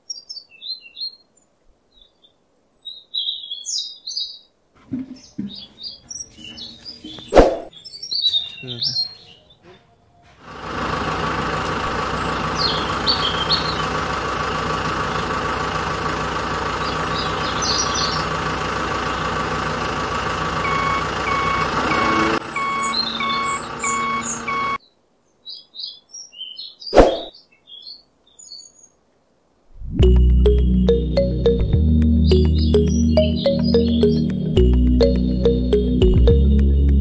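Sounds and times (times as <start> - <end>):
toy truck engine drone: 18.3 - 24.8
reversing beeps: 20.6 - 24.8
faint bird chirps: 22.6 - 29.0.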